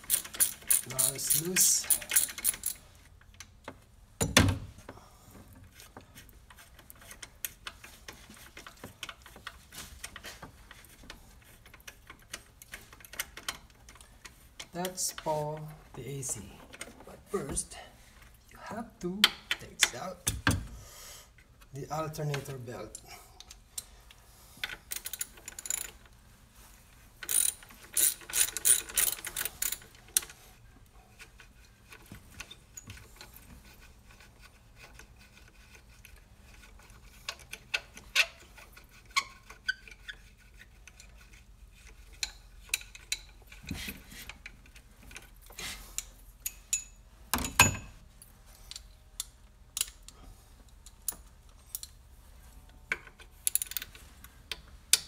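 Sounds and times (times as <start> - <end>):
ratchet wrench clicking: 0.0 - 2.8, 27.2 - 29.8.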